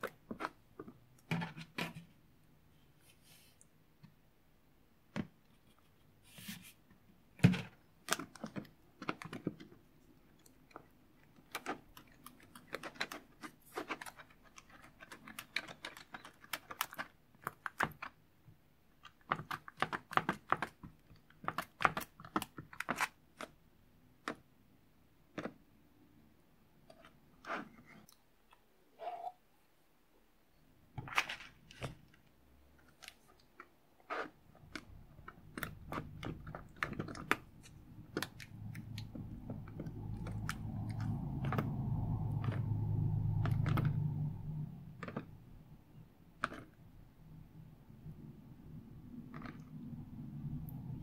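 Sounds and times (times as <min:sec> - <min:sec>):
spatula stirring sticky slime: 0:00.0 - 0:03.8, 0:05.4 - 0:24.3, 0:26.8 - 0:28.4, 0:31.8 - 0:45.5.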